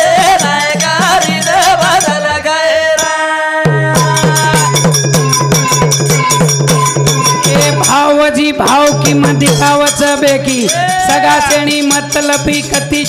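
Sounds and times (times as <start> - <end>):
devotional song with drumming: 0.0 - 13.0
quick percussion strokes: 3.0 - 13.0.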